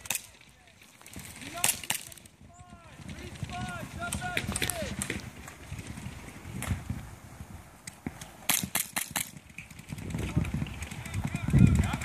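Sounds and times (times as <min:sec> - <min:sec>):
sharp popping gunshots: 0:08.4 - 0:09.4.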